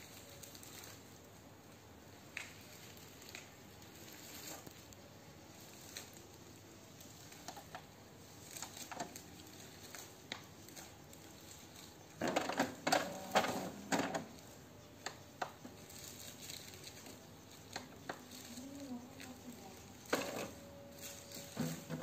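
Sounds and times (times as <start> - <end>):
printer mechanism whirring: 11.9 - 15.7, 19.8 - 22.0.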